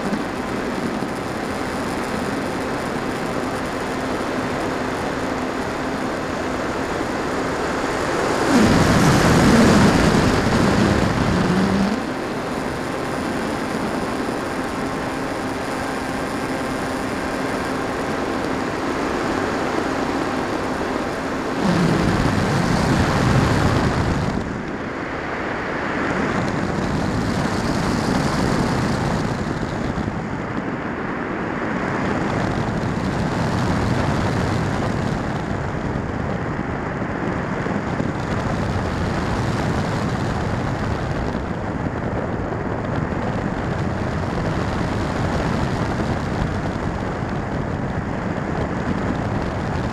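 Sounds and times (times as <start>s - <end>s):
steady whine: 0.0s - 49.9s
air rushing: 8.0s - 12.4s, 21.4s - 24.6s.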